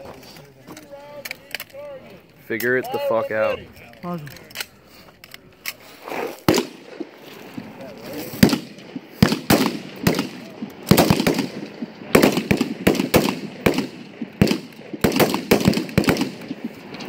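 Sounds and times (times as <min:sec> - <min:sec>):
rifle shots: 0:06.4 - 0:07.7, 0:08.3 - 0:17.0.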